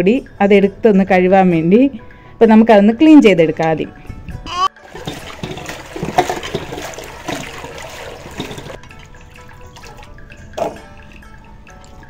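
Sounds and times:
small splashes and knocks: 0:04.8 - 0:12.0
tap water running into pot: 0:04.8 - 0:12.0
hands swishing food in water: 0:04.9 - 0:08.8.

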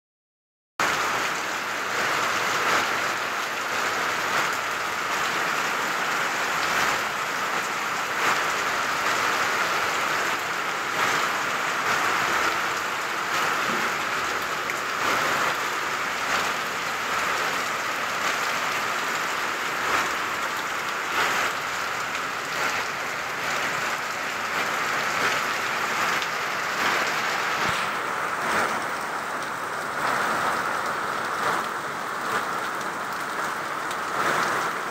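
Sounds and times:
heavy rain falling: 0:00.8 - 0:34.9
water splashing onto concrete: 0:10.0 - 0:34.9.

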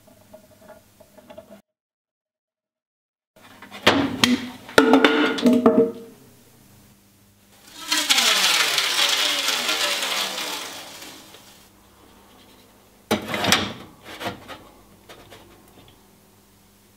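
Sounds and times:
hollow falling whoosh: 0:07.6 - 0:11.7.

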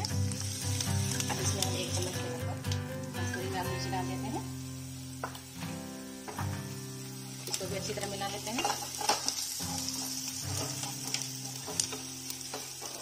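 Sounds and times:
onions sizzling in oil: 0:00.0 - 0:13.0
spatula stirring and scraping: 0:08.6 - 0:13.0.

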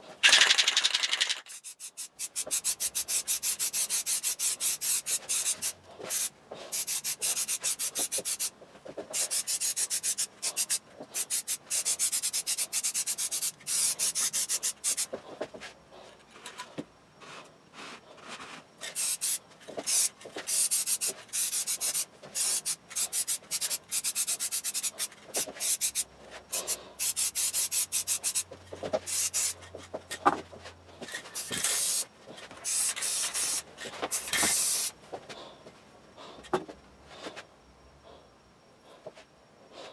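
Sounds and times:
aerosol spray can hissing: 0:00.2 - 0:08.5, 0:09.1 - 0:15.1, 0:18.8 - 0:28.4, 0:29.1 - 0:29.6, 0:31.4 - 0:34.9.

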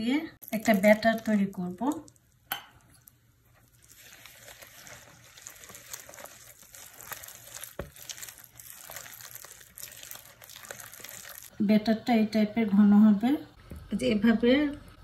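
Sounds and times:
whisk scraping in bowl: 0:03.8 - 0:11.4.

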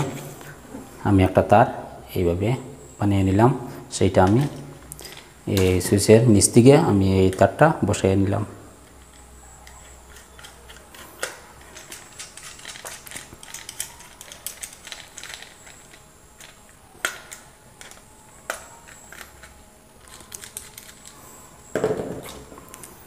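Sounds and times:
screwdriver clicking and scraping: 0:08.8 - 0:21.1.

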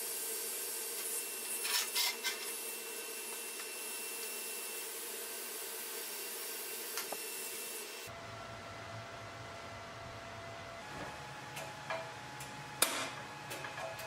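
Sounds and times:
welding arc hissing and crackling: 0:00.0 - 0:08.1.

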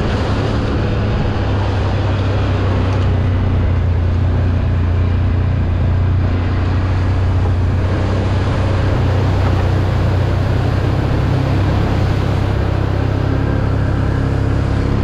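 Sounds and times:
atv engine running: 0:00.0 - 0:15.0
ride noise: 0:00.0 - 0:15.0.

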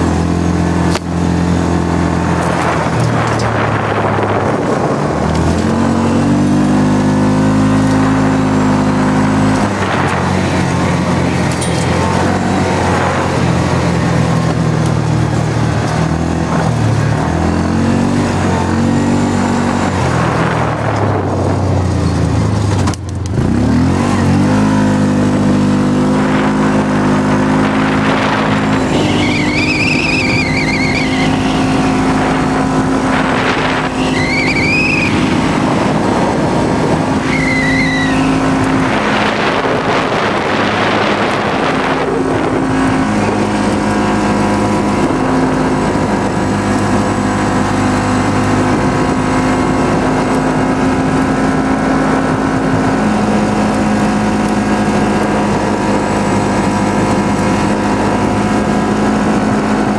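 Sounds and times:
engine running hard: 0:00.0 - 0:59.9
wavering high-pitched squeal: 0:28.2 - 0:36.1, 0:37.1 - 0:38.8.

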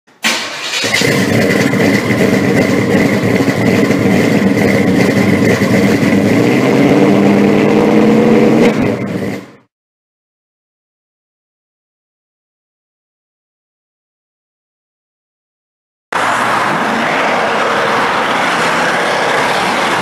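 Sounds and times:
car engine running loud: 0:00.3 - 0:09.7, 0:16.2 - 0:20.0.

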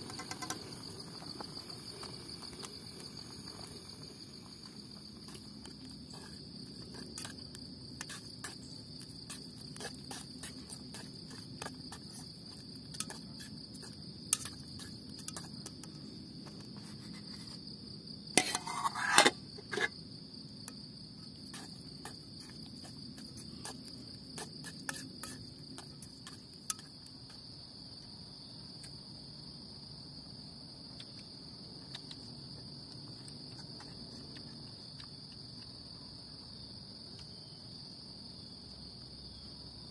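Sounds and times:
insects chirring: 0:00.0 - 0:39.9
pot and lid clattering: 0:18.4 - 0:19.9.

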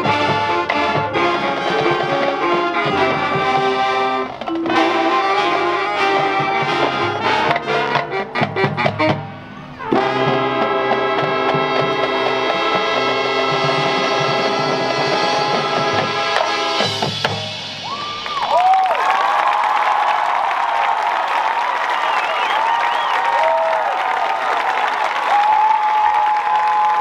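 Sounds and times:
marching band playing: 0:00.0 - 0:19.6
crowd whooping and cheering: 0:17.7 - 0:27.0.

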